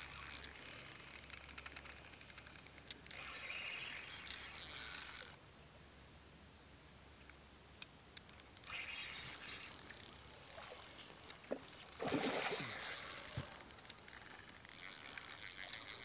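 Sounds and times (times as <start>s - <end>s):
fishing reel clicking: 0.0s - 5.4s, 8.2s - 12.0s, 12.6s - 16.0s
fish splashing: 8.7s - 13.6s.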